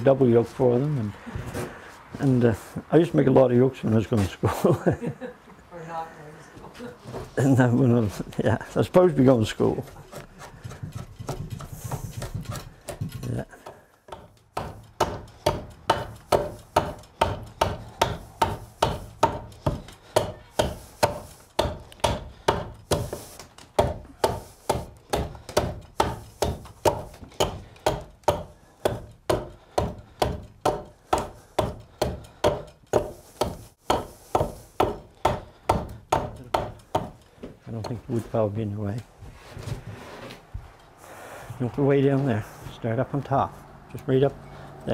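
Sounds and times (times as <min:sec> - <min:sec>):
draw knife shaving wood: 0:09.6 - 0:13.4
hand axe chopping wood: 0:09.8 - 0:37.9.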